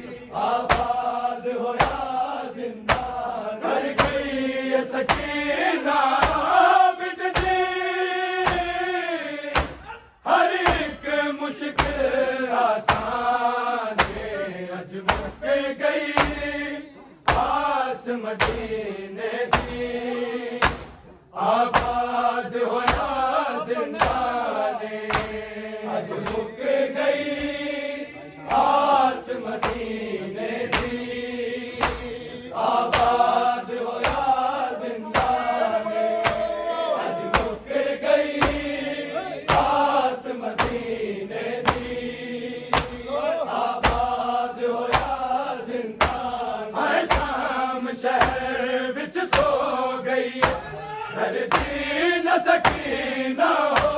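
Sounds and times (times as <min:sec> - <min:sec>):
men chanting a lament: 0:00.0 - 0:53.9
hands striking chests: 0:09.6 - 0:09.9, 0:20.6 - 0:21.0, 0:22.8 - 0:23.2, 0:25.0 - 0:25.4, 0:36.2 - 0:36.6, 0:43.8 - 0:44.2.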